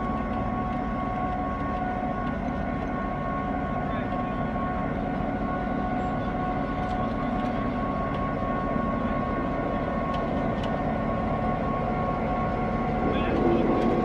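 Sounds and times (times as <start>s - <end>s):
diesel locomotive engine drone: 0.0s - 14.0s
high-pitched whine: 5.6s - 14.0s.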